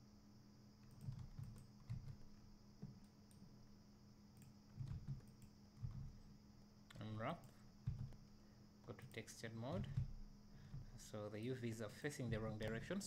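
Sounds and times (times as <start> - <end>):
keyboard and mouse clicks: 0.8 - 3.4, 4.4 - 6.2, 6.9 - 8.2, 8.9 - 11.0.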